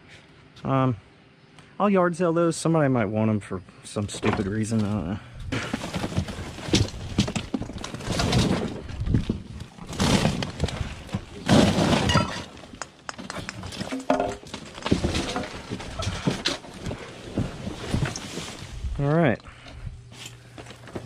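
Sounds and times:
loose items clattering: 4.1 - 18.6
cardboard rustling and scraping: 5.5 - 12.1, 13.7 - 18.9.

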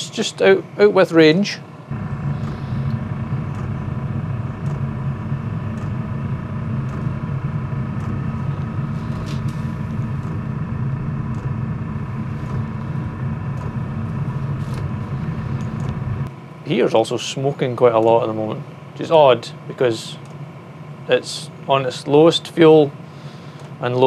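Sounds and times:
diesel heater rumble: 1.9 - 16.3.

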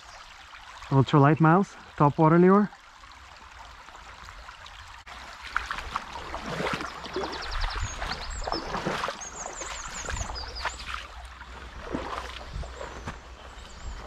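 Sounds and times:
footsteps squelching through wet grass: 5.1 - 14.0
songbird chirping and trilling: 6.8 - 11.2, 12.4 - 14.0.

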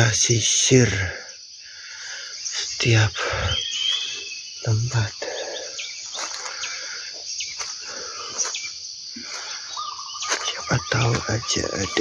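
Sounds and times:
bird chirps: 0.0 - 12.0
high-pitched insect chorus: 0.0 - 12.0.

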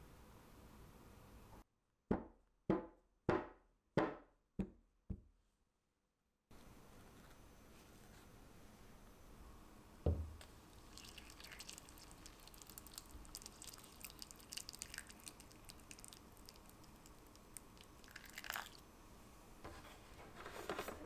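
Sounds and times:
brief knock: 10.0 - 10.4
water trickling onto paper towel: 10.8 - 18.8.

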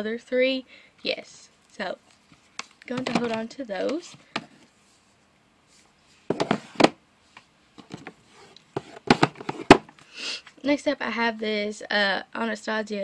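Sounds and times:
palettes clattering and scraping: 2.3 - 4.7, 6.3 - 7.0, 7.8 - 9.9.

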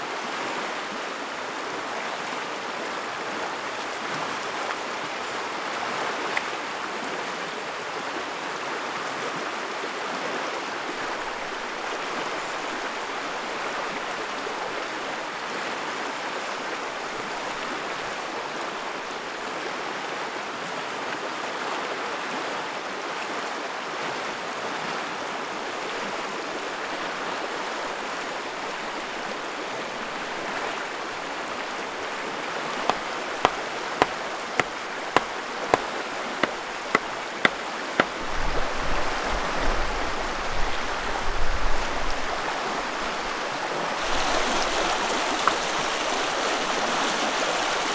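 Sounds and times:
river rushing over rapids: 0.0 - 47.9
hatchet hammering wooden stake: 32.8 - 38.2.

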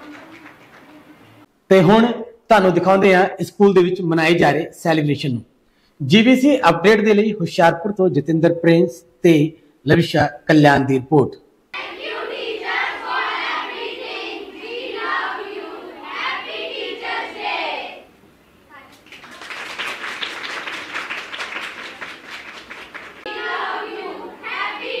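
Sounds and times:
hands clapping: 0.0 - 1.4, 18.9 - 23.3
girls singing in unison: 11.8 - 18.1, 23.2 - 25.0.

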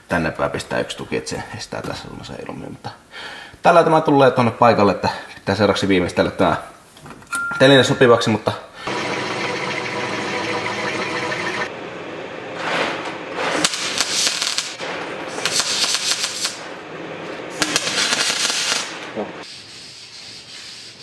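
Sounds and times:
drill press running: 8.8 - 11.9
welder crackling: 13.5 - 16.8, 17.6 - 19.1.

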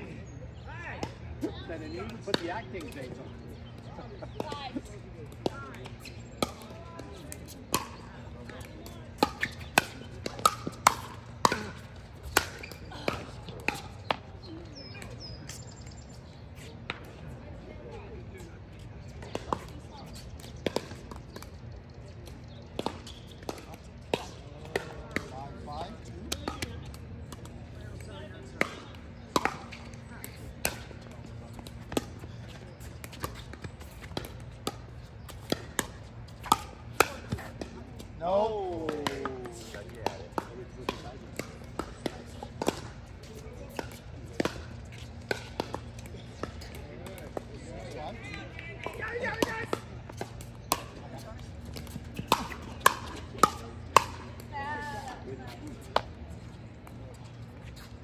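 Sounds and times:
pickleball paddle hits: 5.2 - 14.2, 22.5 - 47.9, 48.8 - 55.1.

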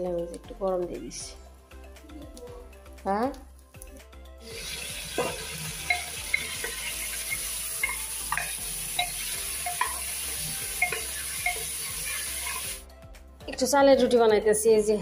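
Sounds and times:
food sizzling: 4.4 - 12.8
spatula scraping and knocking pot: 5.1 - 12.7.

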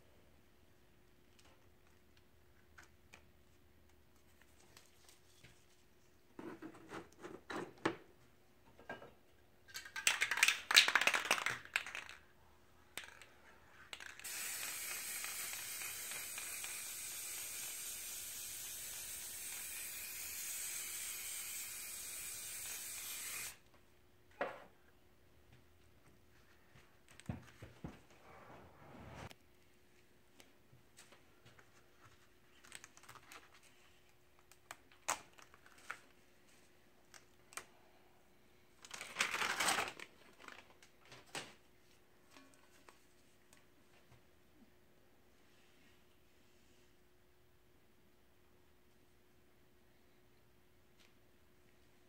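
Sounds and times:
spray can rattling: 10.0 - 12.2, 13.9 - 23.6
spray hiss: 14.2 - 23.6.

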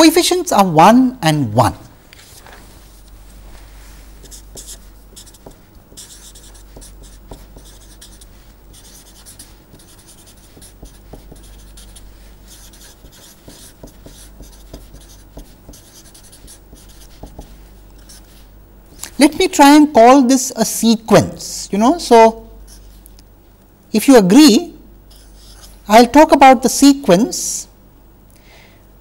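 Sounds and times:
low steady hum: 0.0 - 29.0
marker scratching on paper: 4.2 - 18.5, 25.1 - 25.8.

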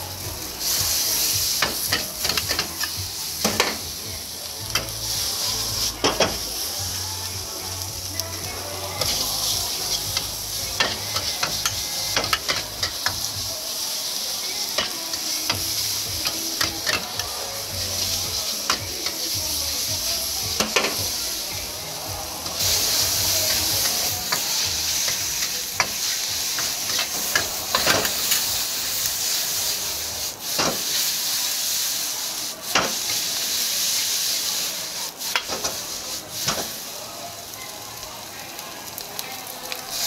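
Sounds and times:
noodles sizzling in a wok: 0.0 - 40.0.

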